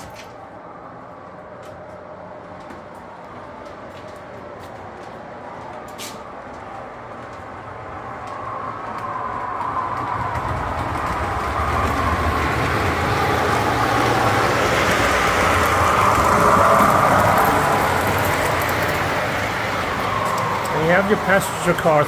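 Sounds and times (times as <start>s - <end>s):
model train rumbling on track: 8.3s - 22.0s.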